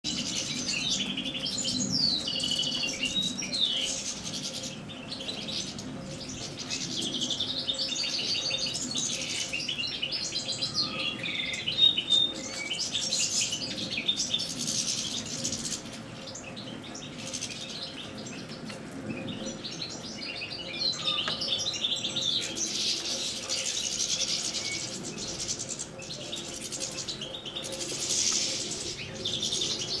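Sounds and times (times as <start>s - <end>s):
goldfinches twittering and singing: 0.1s - 30.0s.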